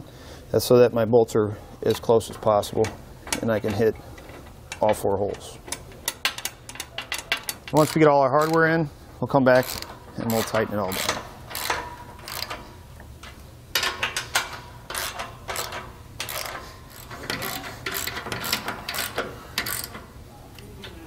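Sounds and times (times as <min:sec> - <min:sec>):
socket ratchet wrench clicking: 0:09.6 - 0:20.0.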